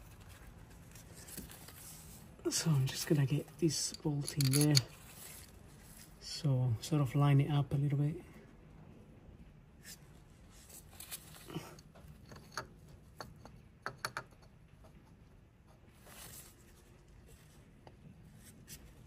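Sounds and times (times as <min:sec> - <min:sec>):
metal parts clicking and knocking: 0:03.9 - 0:05.0.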